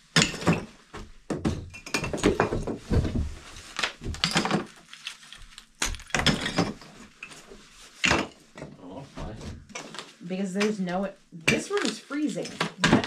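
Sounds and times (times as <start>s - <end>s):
plaster and lath cracking: 2.8s - 8.0s.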